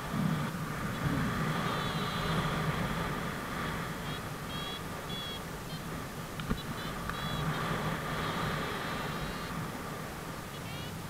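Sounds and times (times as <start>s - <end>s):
airflow rushing on microphone: 0.0s - 11.0s
short high beeps: 4.0s - 5.8s, 6.6s - 9.6s, 10.5s - 11.0s.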